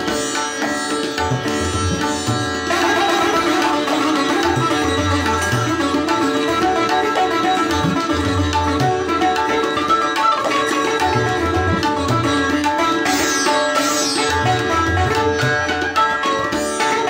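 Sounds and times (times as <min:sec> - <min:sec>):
plucked strings: 0:00.0 - 0:17.0.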